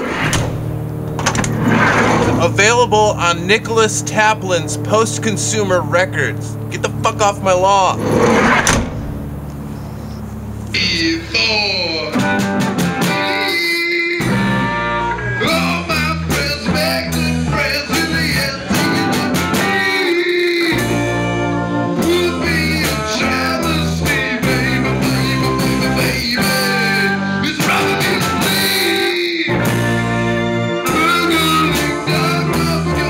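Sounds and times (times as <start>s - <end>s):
loud rock music: 0.0s - 9.4s, 10.8s - 33.0s
man singing: 10.8s - 12.4s, 13.0s - 21.3s, 21.9s - 33.0s.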